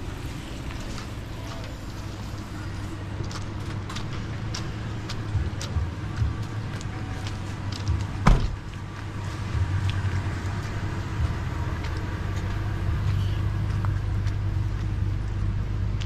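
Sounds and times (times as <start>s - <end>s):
van engine humming: 0.0s - 16.0s
vehicle door slamming: 8.2s - 8.7s.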